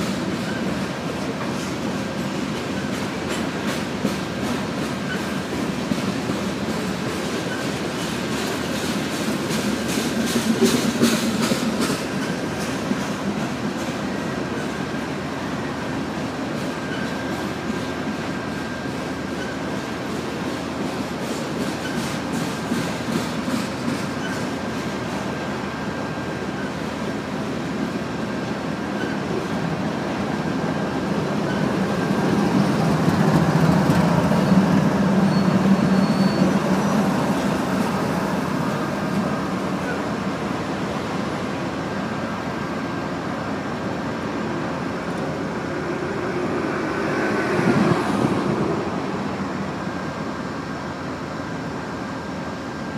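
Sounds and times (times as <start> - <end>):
train wheels rumbling on rail: 0.0 - 52.9
faint steady squeal: 16.8 - 17.6, 33.6 - 36.9.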